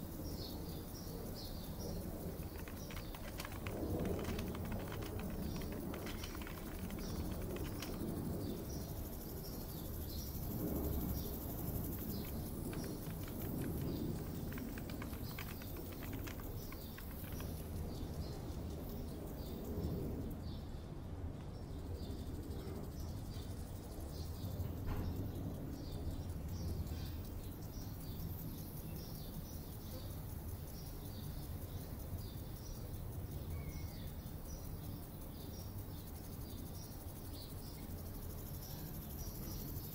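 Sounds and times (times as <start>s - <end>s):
small birds chirping: 0.0s - 21.0s, 21.6s - 39.9s
steady low rumble: 2.0s - 22.8s
light clicks: 2.4s - 8.5s, 11.6s - 17.8s.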